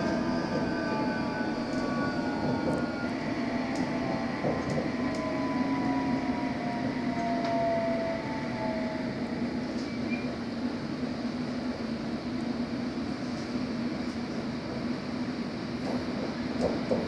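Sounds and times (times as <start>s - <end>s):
traction motor whine: 0.0s - 9.6s
train wheels rumbling: 0.0s - 12.6s.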